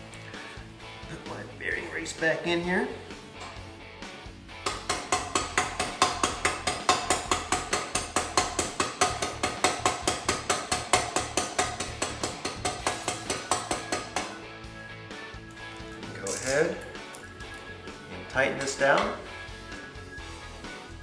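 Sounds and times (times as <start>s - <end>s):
hammer tapping on metal: 4.6s - 14.4s.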